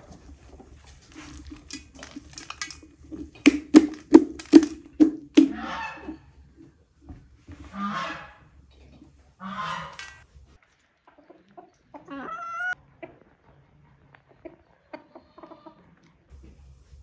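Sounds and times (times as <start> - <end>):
chickens clucking: 2.8 - 16.4
chicken wavering call: 5.4 - 6.3, 11.9 - 12.8.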